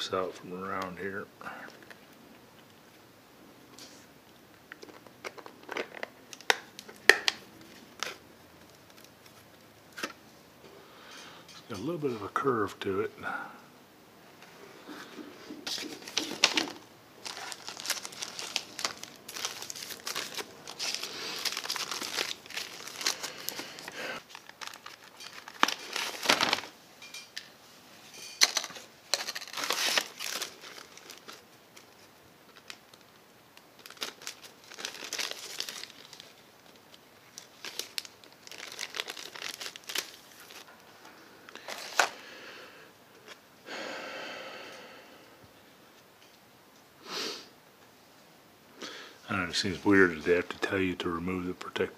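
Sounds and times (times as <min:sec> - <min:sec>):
plastic packaging crinkling: 0:04.7 - 0:10.1, 0:15.6 - 0:26.8, 0:28.2 - 0:42.2.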